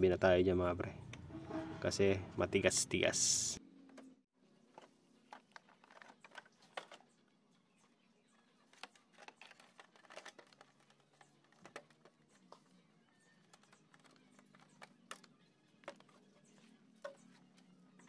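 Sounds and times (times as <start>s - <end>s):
plastic clicks and taps: 8.7s - 12.7s.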